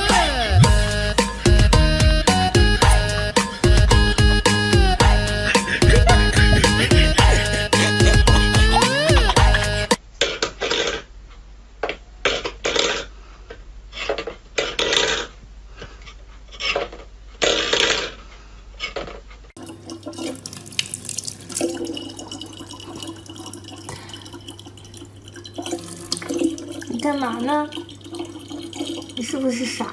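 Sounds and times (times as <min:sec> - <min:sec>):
steady electric hum: 0:19.6 - 0:29.9
water running into plastic bottle: 0:19.6 - 0:29.9.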